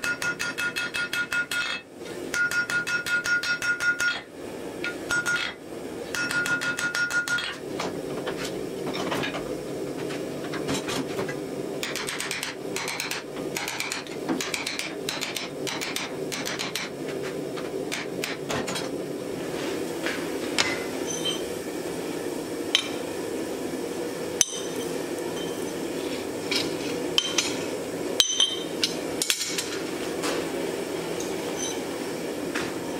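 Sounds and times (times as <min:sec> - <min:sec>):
hammer striking steel on anvil: 0:00.0 - 0:07.6, 0:22.7 - 0:23.0, 0:24.4 - 0:25.7, 0:26.5 - 0:27.6, 0:28.2 - 0:29.8.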